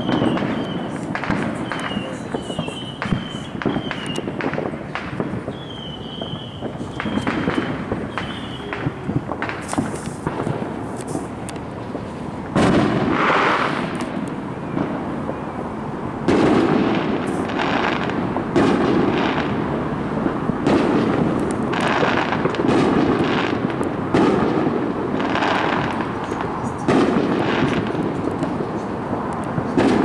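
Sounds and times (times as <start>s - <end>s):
fireworks booming and crackling: 0.0s - 30.0s.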